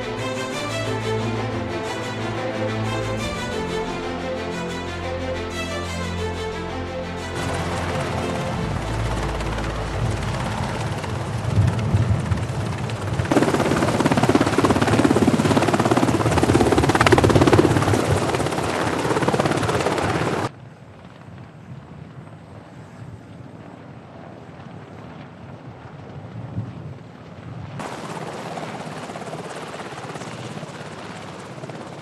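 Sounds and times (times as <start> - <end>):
helicopter rotor chop: 0.0 - 20.5, 27.8 - 32.0
wind: 0.0 - 32.0.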